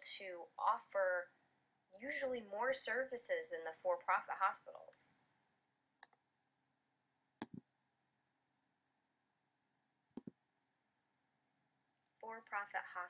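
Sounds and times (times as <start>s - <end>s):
computer mouse clicks: 6.0s - 6.2s, 7.4s - 7.6s, 10.2s - 10.4s.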